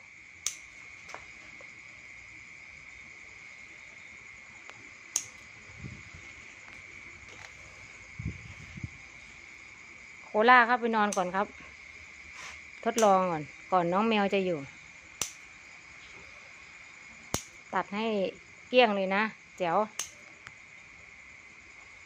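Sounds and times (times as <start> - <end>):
crickets trilling: 0.0 - 22.0
scissors snipping wire mesh: 0.4 - 1.2, 5.1 - 5.5, 11.0 - 11.4, 12.8 - 13.2, 15.2 - 15.5, 17.3 - 17.6, 19.9 - 20.2.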